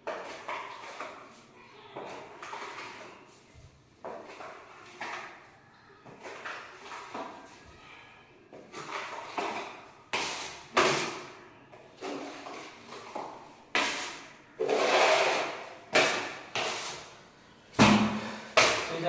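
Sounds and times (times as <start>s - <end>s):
putty blade scraping wall: 12.0s - 17.1s.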